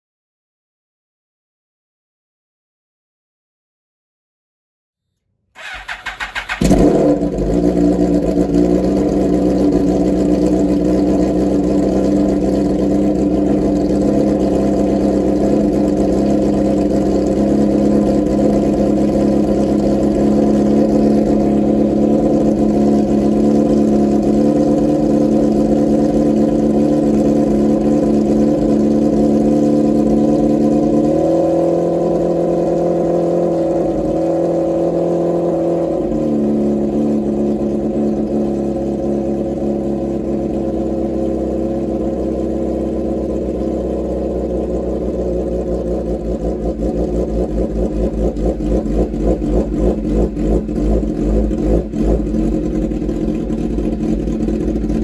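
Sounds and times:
motorcycle engine starter cranking: 0:05.6 - 0:07.0
motorcycle engine idling: 0:05.6 - 0:31.1, 0:36.5 - 0:55.0.

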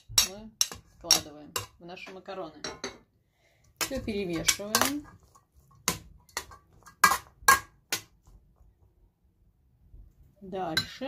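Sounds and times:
spoon clanking on metal pot: 0:00.0 - 0:03.0, 0:03.8 - 0:05.2.

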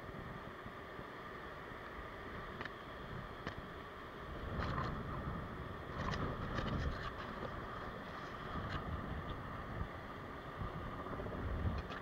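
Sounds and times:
wind on microphone: 0:04.3 - 0:12.0.

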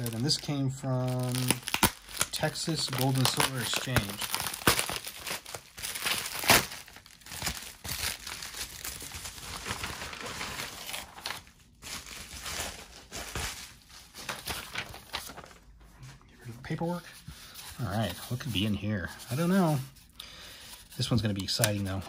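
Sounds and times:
package wrapping crinkling and tearing: 0:00.0 - 0:15.7.

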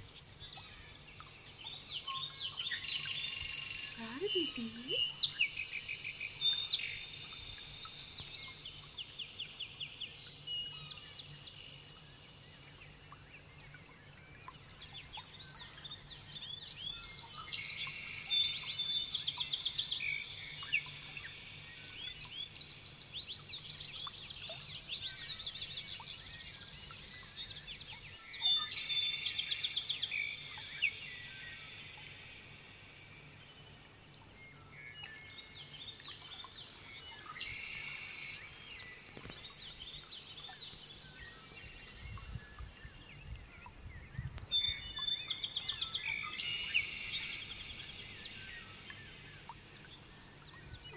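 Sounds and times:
lovebird chirping: 0:03.7 - 0:05.4, 0:37.2 - 0:41.0.

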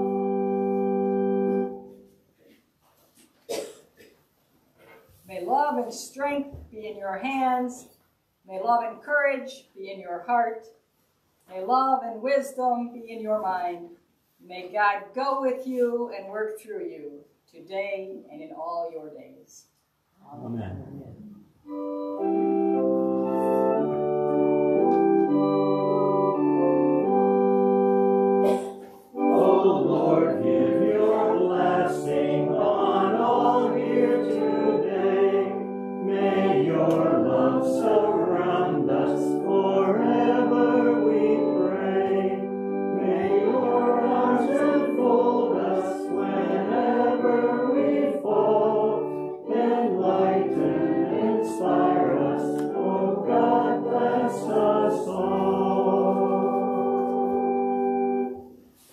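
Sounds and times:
organ playing held chords: 0:00.0 - 0:02.2, 0:21.6 - 0:58.6
voices singing a hymn: 0:28.5 - 0:58.4.

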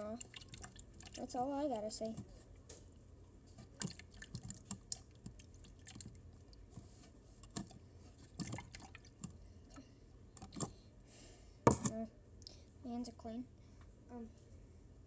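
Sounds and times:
water drips and splashes: 0:00.0 - 0:01.4, 0:03.7 - 0:06.7, 0:07.4 - 0:09.2.

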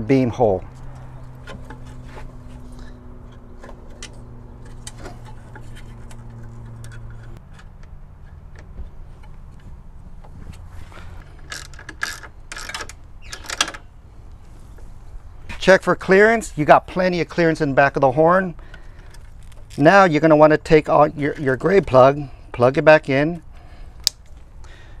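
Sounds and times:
metal brackets clicking and knocking: 0:00.7 - 0:09.6, 0:11.2 - 0:13.9.

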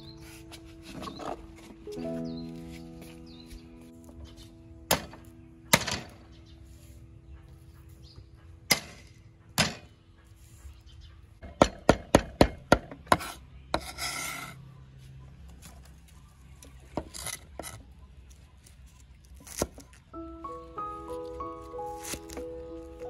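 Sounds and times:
blade scraping across board: 0:13.1 - 0:14.6.

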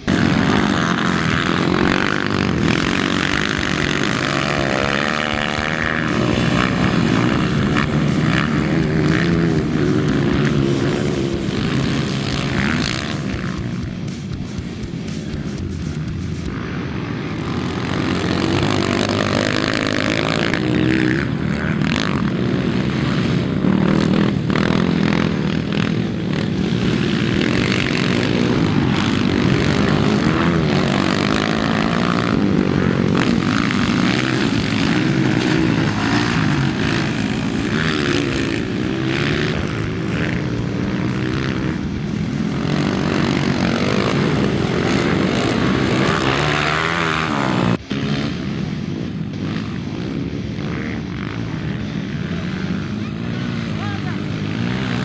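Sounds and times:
dirt bike engines revving: 0:00.0 - 0:55.0.

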